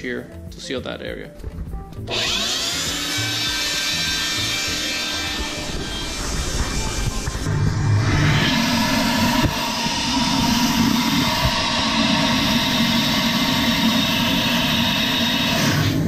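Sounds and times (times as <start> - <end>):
shop vacuum motor whine: 2.0 - 16.0
rushing air: 4.3 - 16.0.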